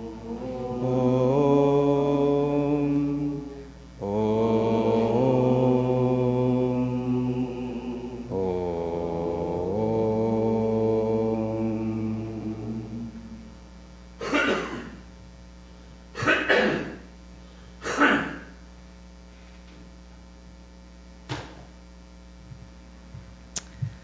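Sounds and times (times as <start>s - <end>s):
electrical mains hum: 0.0s - 24.0s
man coughing: 14.2s - 15.1s, 16.2s - 17.1s, 17.8s - 18.6s.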